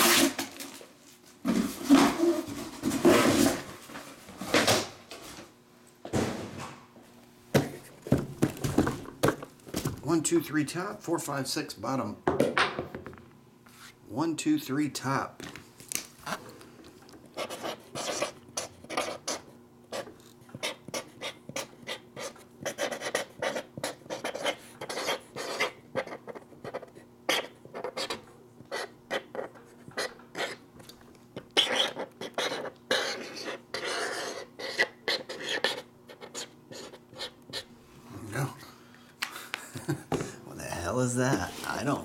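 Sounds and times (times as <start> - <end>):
marker scratching on cardboard: 17.4 - 30.6, 31.4 - 37.7.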